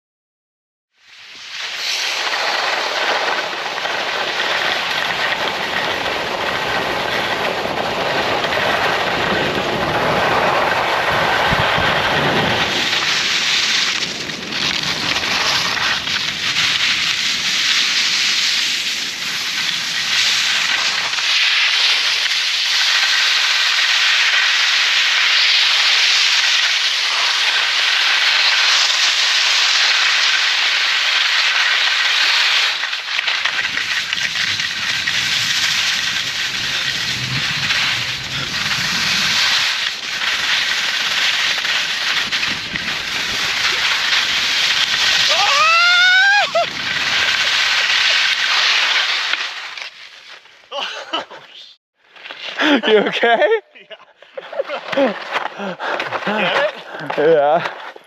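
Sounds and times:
skis hissing over snow: 1.0 - 53.2, 54.5 - 58.0
wind rushing over microphone: 5.4 - 20.7, 33.6 - 47.9.

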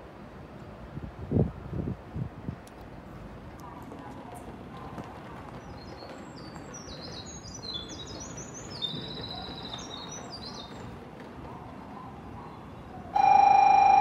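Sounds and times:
birds chirping: 5.1 - 11.0.

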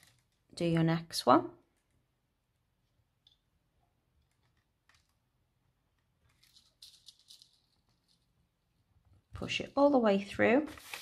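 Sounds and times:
wire and beads clicking and rustling: 0.0 - 0.6, 4.1 - 5.3, 5.9 - 8.4.

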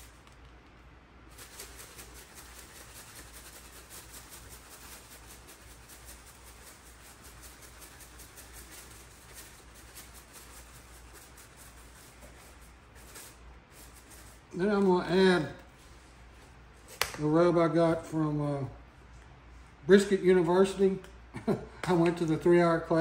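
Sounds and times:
shaker jar rattling: 1.3 - 15.5.

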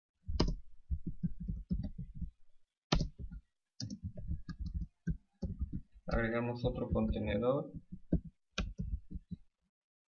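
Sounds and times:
typing on computer keyboard: 0.4 - 2.3, 2.9 - 6.3, 6.9 - 9.4.

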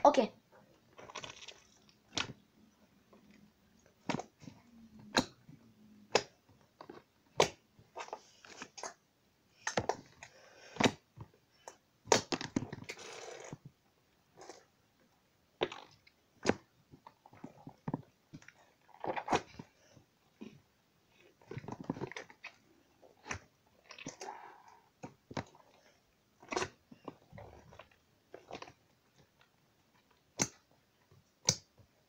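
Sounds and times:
slime popping and squelching: 0.8 - 9.0, 9.6 - 13.1, 15.6 - 19.7.

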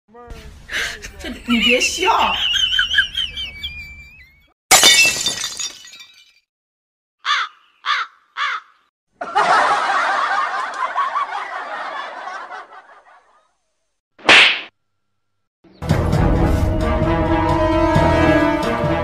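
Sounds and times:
laughter: 0.7 - 4.5, 9.2 - 13.6
caw-like calls: 7.2 - 8.9.

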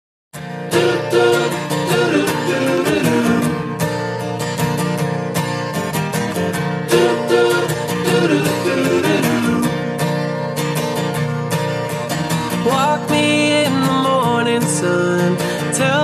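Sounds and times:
upbeat acoustic guitar song: 0.4 - 16.0.

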